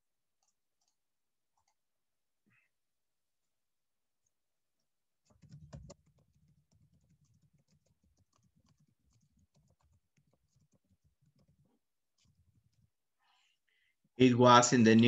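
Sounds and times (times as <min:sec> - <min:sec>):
faint typing on keyboard: 0:00.0 - 0:02.7, 0:04.2 - 0:13.5.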